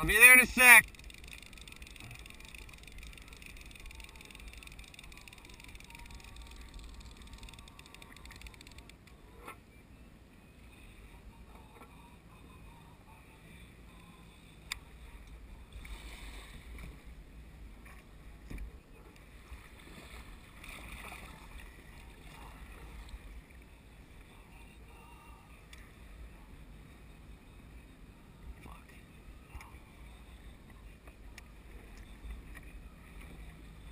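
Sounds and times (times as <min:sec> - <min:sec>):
water splashing against hull: 0:14.7 - 0:24.4.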